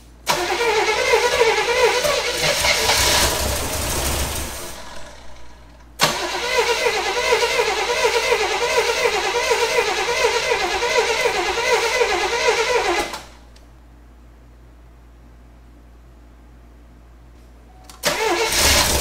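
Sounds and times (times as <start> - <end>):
engine cranking without catching: 0.3 - 13.4, 18.0 - 19.0.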